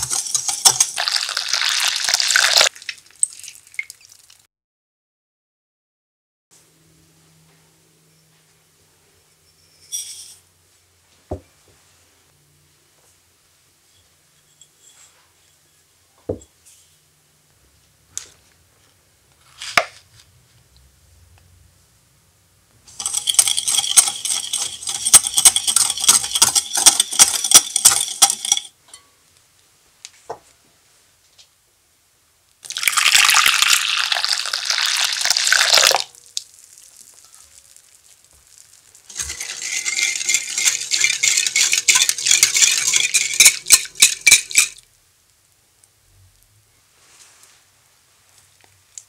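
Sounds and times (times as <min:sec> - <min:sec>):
whisk clinking against glass bowl: 0:00.0 - 0:01.8, 0:22.9 - 0:28.7, 0:39.1 - 0:44.8
boiling water pouring: 0:00.0 - 0:04.4, 0:22.9 - 0:28.6, 0:32.6 - 0:44.8.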